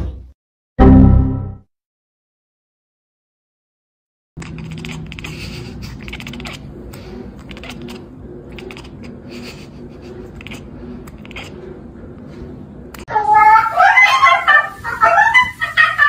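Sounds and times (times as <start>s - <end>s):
cat chattering: 4.4s - 11.6s.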